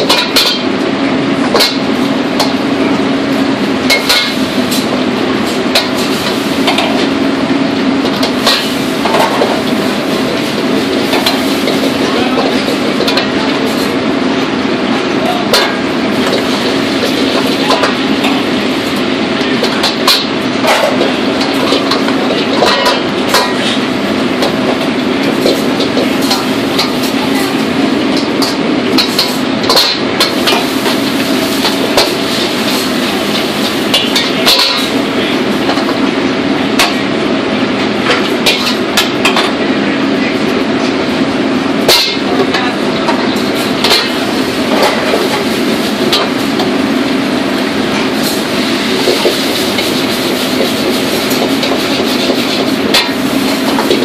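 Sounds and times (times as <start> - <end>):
burners and exhaust hood roaring: 0.0 - 54.0
ladle clanking against woks: 3.9 - 7.1, 15.4 - 36.1.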